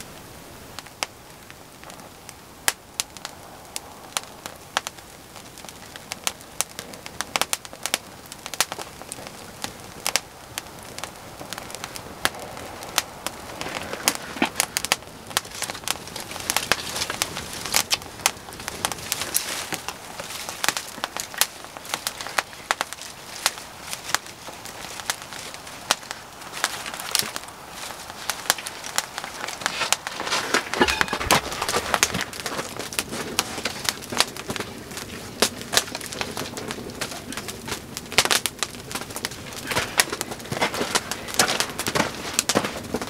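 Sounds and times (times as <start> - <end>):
hiss of flame: 0.0 - 43.0
twigs crackling and popping in fire: 0.0 - 43.0.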